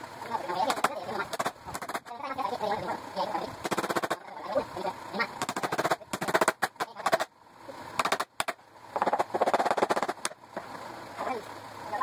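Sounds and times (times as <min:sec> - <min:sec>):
pitched-up quacking chatter: 0:00.3 - 0:07.3
rapid rattling clatter: 0:00.4 - 0:02.2, 0:03.6 - 0:04.3, 0:05.4 - 0:07.3, 0:08.0 - 0:10.4.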